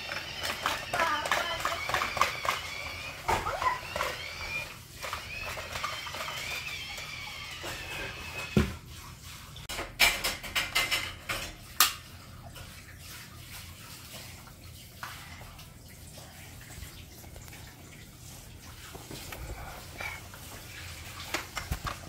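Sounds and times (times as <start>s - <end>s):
plastic toy clicks and clatters: 0.0s - 8.2s.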